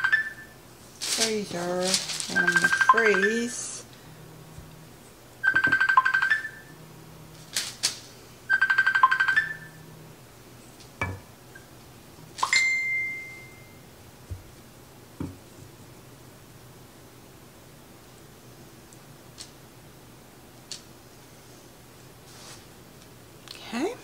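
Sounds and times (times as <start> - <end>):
electronic phone ringtone trill: 0.0 - 0.5, 2.4 - 3.3, 5.4 - 6.7, 8.5 - 9.8.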